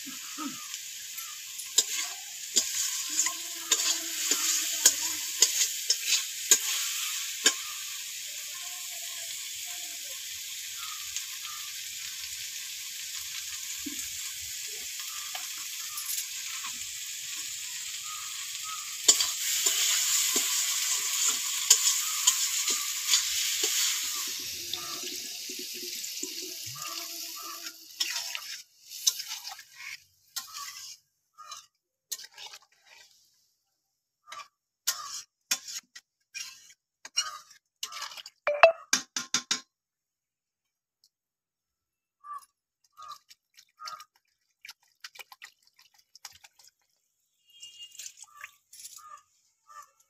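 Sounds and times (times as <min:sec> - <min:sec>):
food sizzling in a pan: 0:00.0 - 0:33.5, 0:34.3 - 0:38.3
spoon scraping metal pan: 0:01.6 - 0:07.8, 0:18.9 - 0:25.2, 0:26.3 - 0:33.2, 0:34.3 - 0:38.2.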